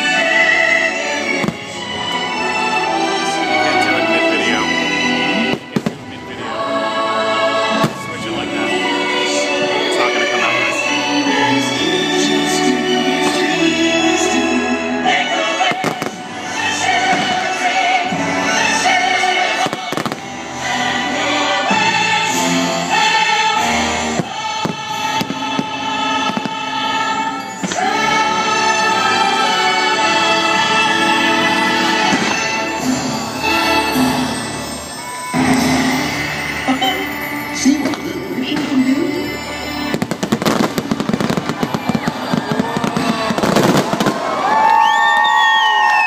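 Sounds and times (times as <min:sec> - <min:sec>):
choir singing with orchestra: 0:00.0 - 0:44.6
show music: 0:00.0 - 0:46.0
firework bangs: 0:05.4 - 0:06.2, 0:15.6 - 0:16.3, 0:19.4 - 0:20.4, 0:24.1 - 0:28.0, 0:39.9 - 0:44.8.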